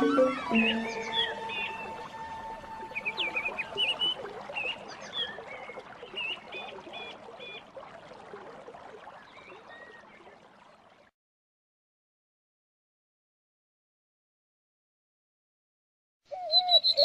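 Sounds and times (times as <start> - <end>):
small birds chirping: 0.0 - 2.2, 2.9 - 7.7, 16.3 - 17.0.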